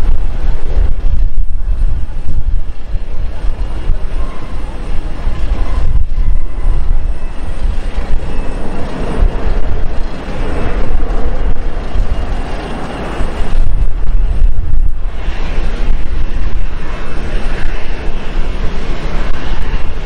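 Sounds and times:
jet engines rushing: 0.0s - 20.0s
low rumble: 0.0s - 20.0s.

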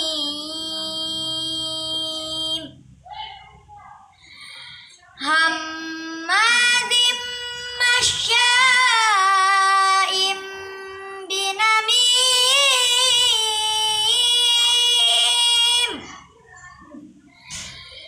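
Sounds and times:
boy chanting melodically: 0.0s - 18.0s.

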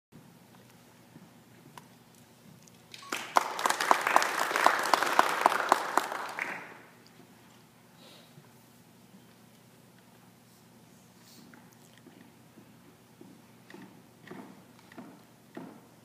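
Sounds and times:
audience applauding: 2.9s - 6.9s
loud nearby hand claps: 2.9s - 6.9s.

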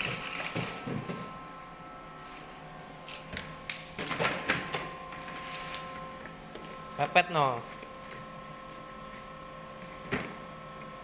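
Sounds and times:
factory machinery humming: 0.0s - 11.0s.

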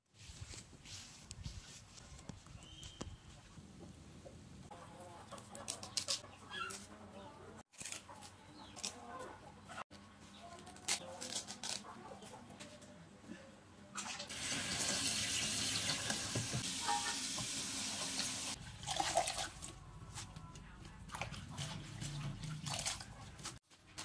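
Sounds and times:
leaves rustling and clicking: 5.4s - 7.0s, 7.7s - 9.0s, 10.4s - 12.7s
tap water splashing: 15.7s - 18.3s.

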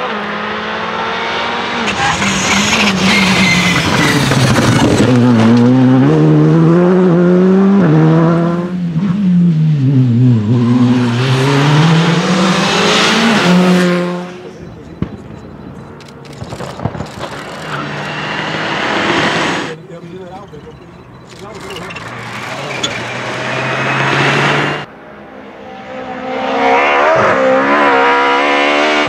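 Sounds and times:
rally car engine revving hard: 0.0s - 14.6s, 16.8s - 19.7s, 21.9s - 24.9s, 25.7s - 29.0s
another car engine: 0.0s - 25.0s
sharp clicks: 14.9s - 18.1s, 21.1s - 23.0s.

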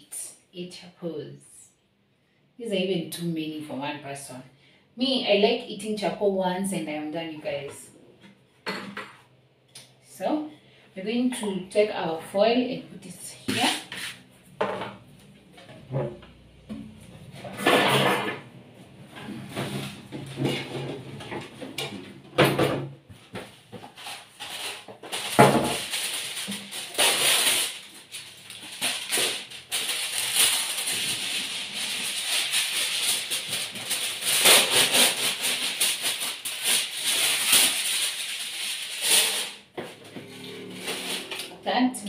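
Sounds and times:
aluminium foil crinkling: 23.8s - 39.6s.

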